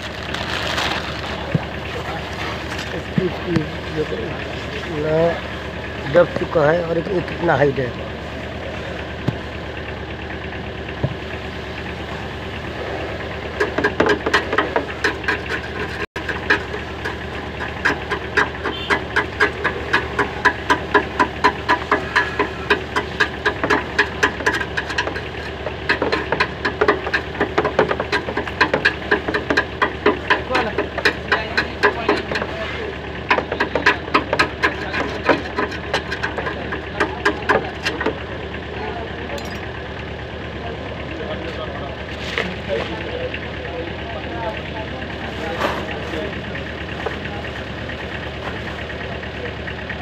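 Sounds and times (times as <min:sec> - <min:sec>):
steady engine-like hum: 0:00.0 - 0:50.0
rapid metallic clicking: 0:13.4 - 0:39.8.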